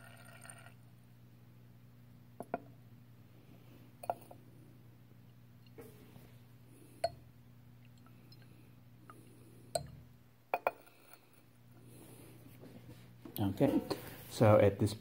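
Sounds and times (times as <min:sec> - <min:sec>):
steady low hum: 0:00.0 - 0:15.0
glass flask clinking: 0:09.8 - 0:11.0.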